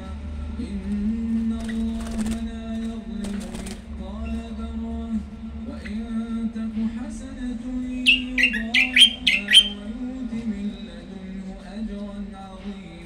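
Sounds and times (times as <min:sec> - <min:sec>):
steady pitched drone: 0:00.0 - 0:13.0
songbird chirping: 0:05.5 - 0:06.6, 0:07.4 - 0:10.9.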